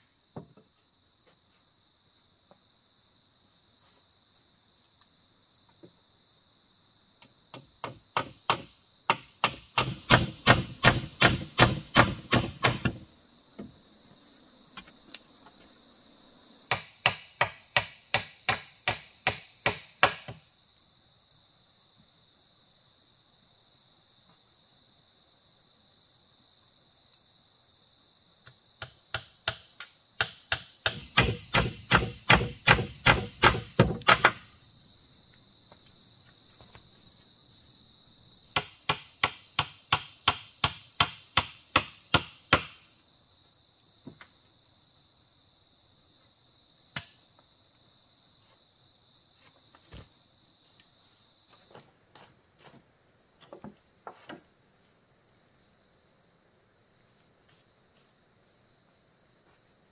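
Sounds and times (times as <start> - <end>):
high insect drone: 0.0 - 59.9
hand tool striking wood: 7.5 - 13.7, 16.7 - 20.4, 28.8 - 34.4, 38.5 - 42.8.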